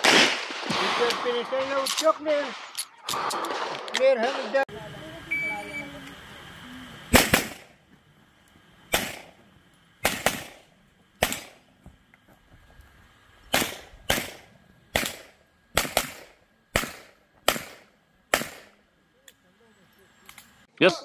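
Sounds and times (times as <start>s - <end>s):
pistol shots: 0.0s - 1.8s, 7.1s - 7.7s, 8.9s - 9.4s, 10.0s - 11.6s, 13.5s - 18.8s.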